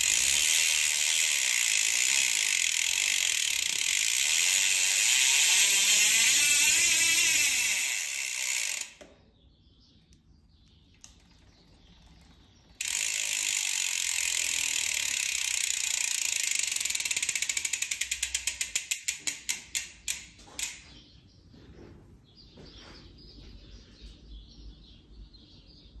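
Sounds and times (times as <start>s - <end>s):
bicycle freehub buzzing and clicking: 0.0s - 9.1s, 11.0s - 20.8s.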